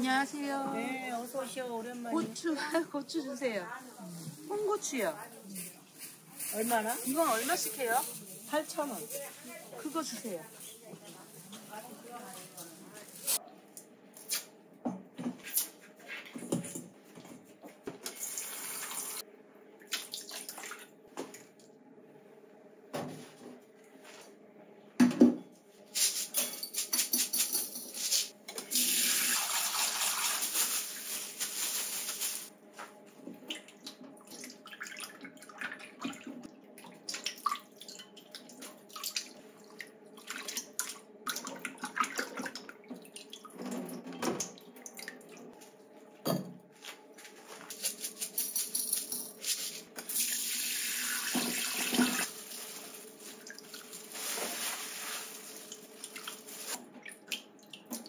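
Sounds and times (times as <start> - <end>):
bowls and strainer clinking: 26.2 - 28.3, 47.7 - 49.8.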